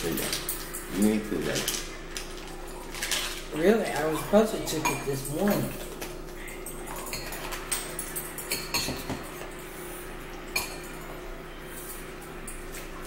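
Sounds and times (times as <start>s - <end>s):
cutlery clinking on ceramic bowls: 2.8s - 9.7s, 10.5s - 12.9s.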